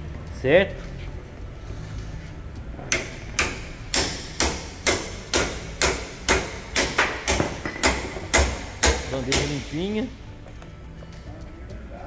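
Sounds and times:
sharp knocks: 2.9s - 9.7s.

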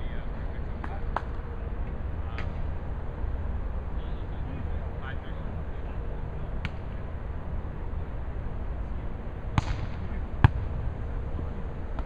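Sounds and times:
volleyball hits: 9.6s - 10.7s.

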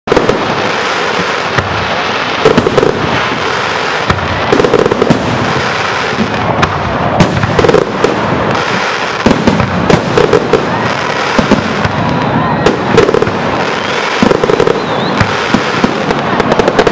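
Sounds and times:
fireworks bangs and crackles: 0.1s - 16.9s.

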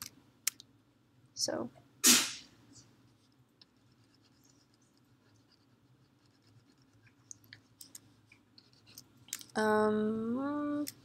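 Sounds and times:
low room hum: 0.0s - 11.0s
light scratches: 2.8s - 9.5s.

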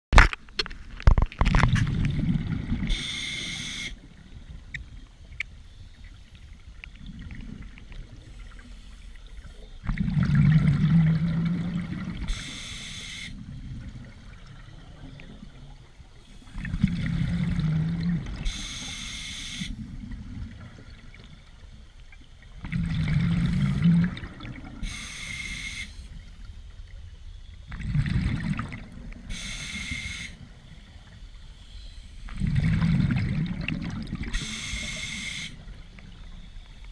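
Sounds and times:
exhaled bubbles rumbling: 1.1s - 3.0s, 6.4s - 8.5s, 9.8s - 12.4s, 13.4s - 18.5s, 19.8s - 25.0s, 27.6s - 29.3s, 32.2s - 34.6s
regulator inhale hiss: 2.9s - 4.1s, 8.2s - 9.7s, 12.2s - 13.5s, 16.2s - 17.7s, 18.4s - 19.9s, 24.8s - 26.6s, 29.3s - 32.4s, 34.3s - 35.8s.

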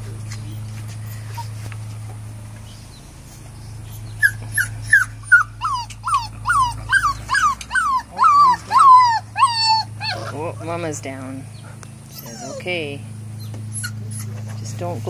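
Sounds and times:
puppy whining and yelping: 1.3s - 1.7s, 3.9s - 10.8s, 11.7s - 12.8s, 13.4s - 14.6s.

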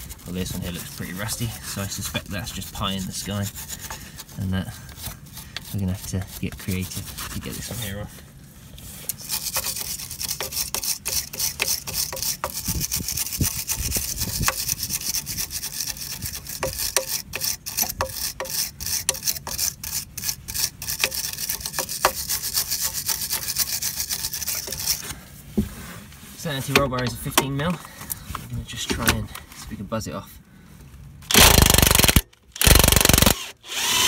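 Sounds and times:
scrubbing metal threads: 0.0s - 8.1s, 8.8s - 25.1s
sharp clicks: 31.3s - 34.0s.

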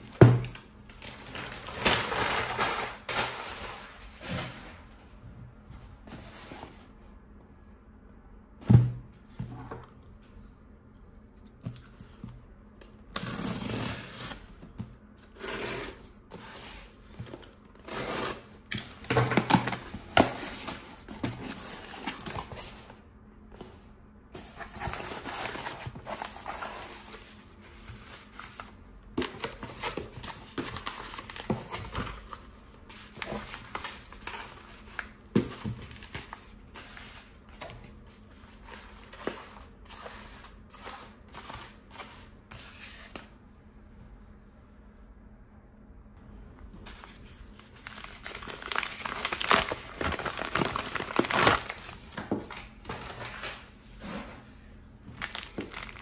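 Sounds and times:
paper packets rustling: 0.9s - 4.8s, 46.8s - 54.2s, 55.0s - 56.0s.

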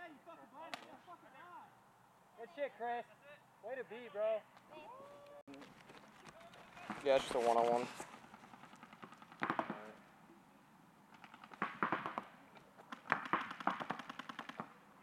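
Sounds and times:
paintball markers firing: 8.2s - 10.0s, 11.1s - 14.8s.

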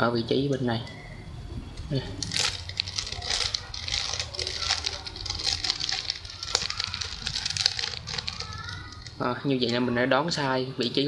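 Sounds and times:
puzzle cube clicking and rattling: 2.2s - 9.2s.

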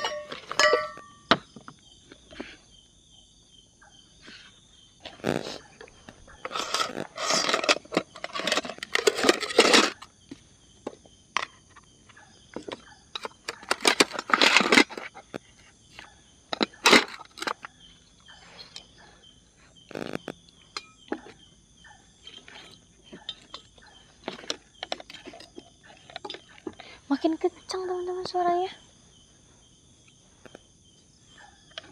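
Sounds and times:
camping gear clicks and knocks: 0.0s - 2.2s, 5.1s - 15.4s, 16.0s - 18.9s, 19.9s - 21.5s, 22.3s - 26.8s
night insects chirring: 0.0s - 31.9s.

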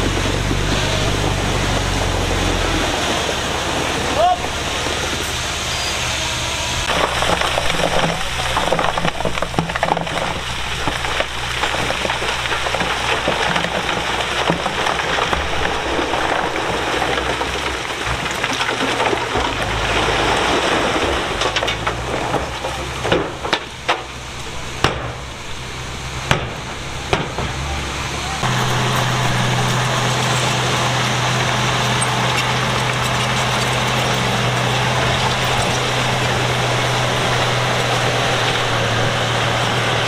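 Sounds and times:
machinery engine hum: 0.0s - 40.0s
rock crackling and scraping: 6.8s - 25.8s, 28.4s - 40.0s
sharp rock cracks: 6.9s - 24.1s.

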